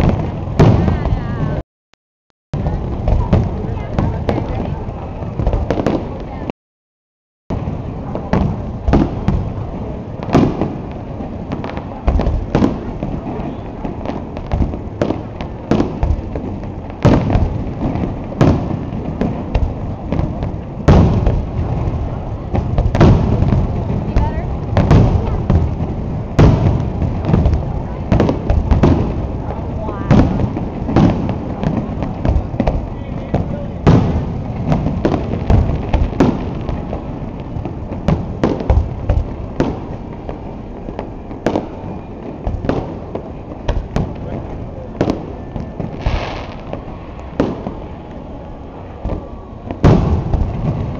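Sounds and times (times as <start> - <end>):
fireworks bursting: 0.0 - 1.6, 2.6 - 6.5, 7.5 - 50.9
fireworks shells bursting: 45.8 - 48.0.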